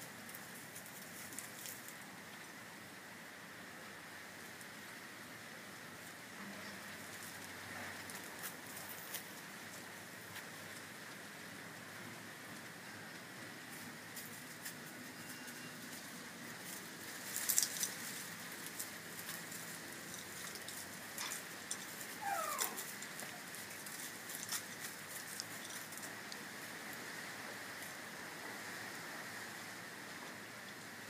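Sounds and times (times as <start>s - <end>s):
puppies rustling in leaves: 0.0s - 2.3s, 7.0s - 31.0s
puppy whimper: 22.2s - 23.4s.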